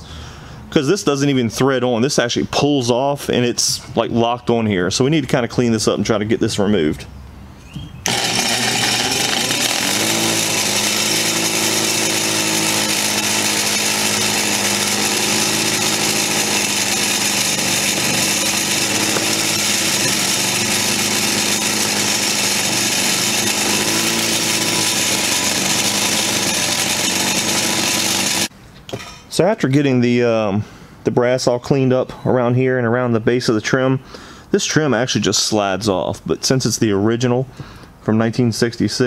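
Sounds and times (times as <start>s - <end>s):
grinder motor hum: 8.0s - 28.5s
wire wheel hissing on metal: 8.1s - 28.5s.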